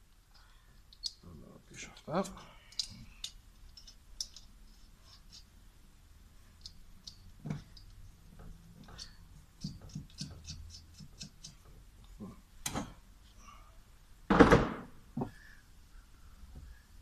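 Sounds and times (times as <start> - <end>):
light metallic clicks and knocks: 1.9 - 4.5.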